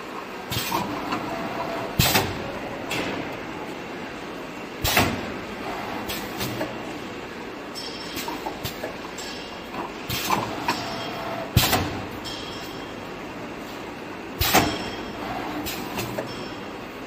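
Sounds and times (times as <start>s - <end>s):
machine mechanical hum: 0.0s - 17.0s
machine clunks: 0.5s - 3.5s, 4.8s - 5.4s, 10.1s - 13.0s, 14.4s - 16.7s.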